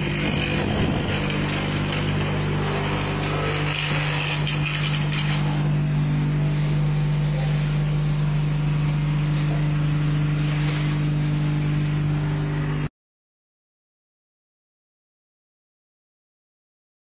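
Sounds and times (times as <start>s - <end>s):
machine rattling: 0.0s - 11.0s
machine motor humming: 0.0s - 12.9s.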